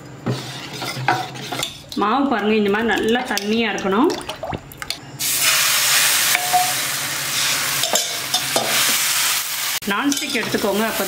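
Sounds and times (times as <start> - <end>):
batter sizzling in hot pan: 5.2 - 11.0.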